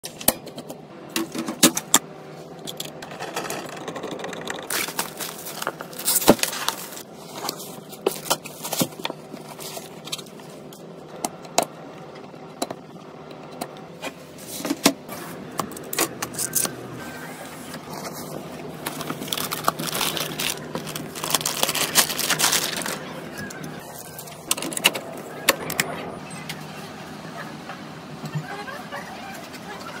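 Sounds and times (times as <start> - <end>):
plastic wrapper rustling: 4.7 - 10.4, 17.8 - 24.3.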